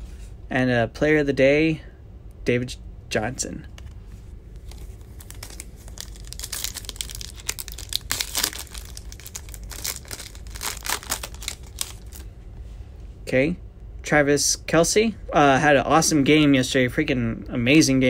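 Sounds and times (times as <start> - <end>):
foil wrapper tearing and crinkling: 4.6 - 12.2.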